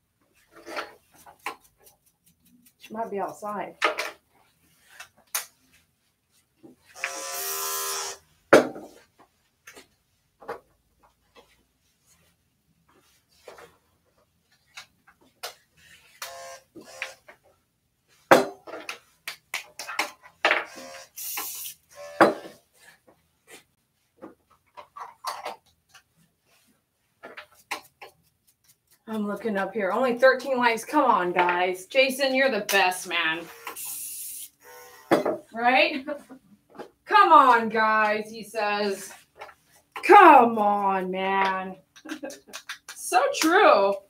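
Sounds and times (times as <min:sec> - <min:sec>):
short electric buzz: 0:07.0 - 0:08.2, 0:20.7 - 0:22.2, 0:33.4 - 0:35.1.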